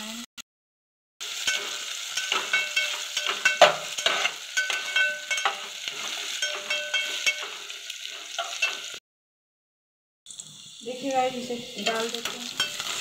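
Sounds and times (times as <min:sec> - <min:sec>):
onions sizzling in oil: 0:01.2 - 0:09.0, 0:10.3 - 0:13.0
metal spatula scraping pot: 0:01.3 - 0:09.0, 0:11.8 - 0:13.0.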